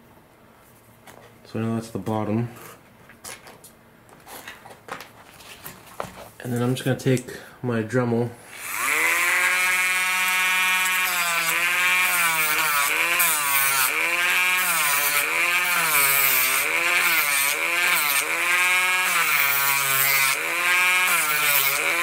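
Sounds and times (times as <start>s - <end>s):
rotary tool running: 8.5s - 22.0s.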